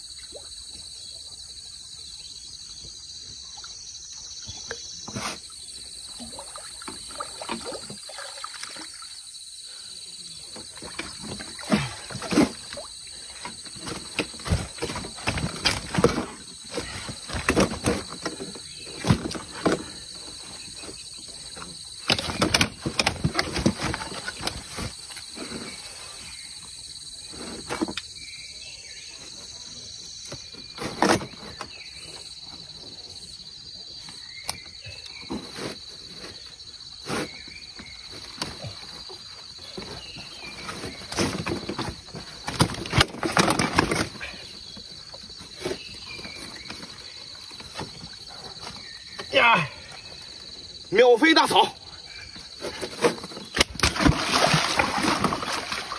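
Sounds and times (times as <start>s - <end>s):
high insect drone: 0.0s - 55.9s
fish thumping in landing net: 53.0s - 55.9s.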